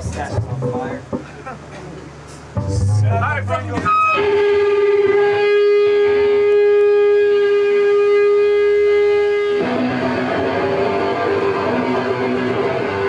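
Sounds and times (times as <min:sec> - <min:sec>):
electric guitar riff: 0:02.5 - 0:13.0
electric guitar held note: 0:02.6 - 0:13.0.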